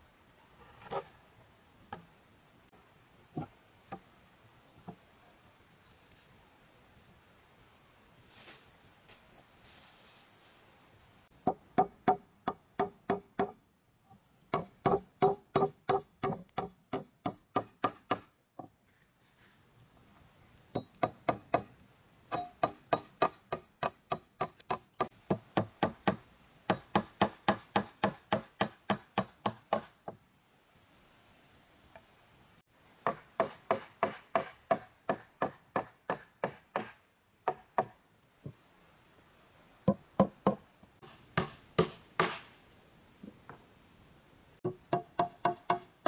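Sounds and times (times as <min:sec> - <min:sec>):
tool striking wood: 0:11.4 - 0:13.6, 0:14.5 - 0:18.3, 0:20.7 - 0:21.7, 0:22.3 - 0:30.2, 0:33.0 - 0:38.0, 0:39.9 - 0:42.5, 0:44.7 - 0:45.9.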